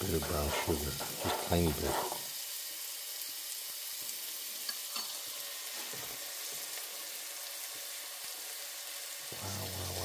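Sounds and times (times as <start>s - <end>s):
meat sizzling in oil: 0.0s - 10.0s.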